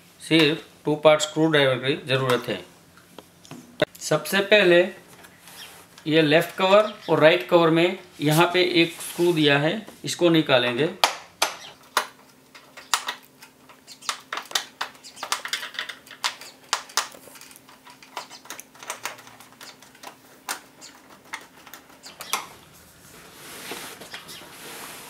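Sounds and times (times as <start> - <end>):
rustling of handling: 12.1 - 25.0.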